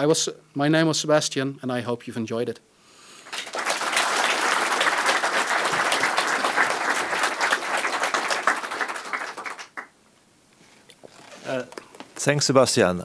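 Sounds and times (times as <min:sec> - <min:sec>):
audience applauding: 0:03.2 - 0:09.9.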